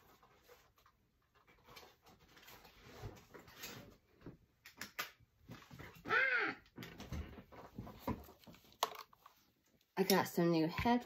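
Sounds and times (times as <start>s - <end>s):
small objects clicking and rustling: 8.1s - 9.4s.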